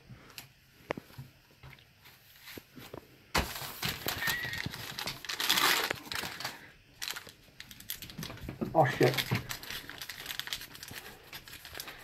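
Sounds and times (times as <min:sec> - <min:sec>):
plastic package crinkling: 0:03.4 - 0:12.0.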